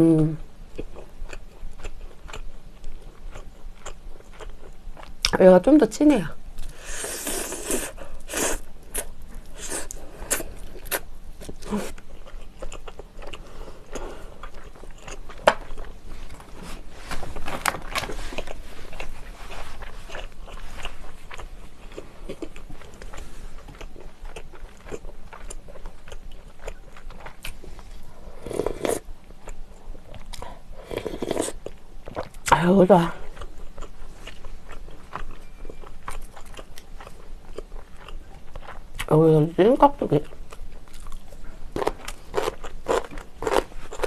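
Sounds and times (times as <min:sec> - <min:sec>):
biting and chewing meat: 0:07.6 - 0:32.5, 0:33.3 - 0:39.1, 0:40.3 - 0:44.0.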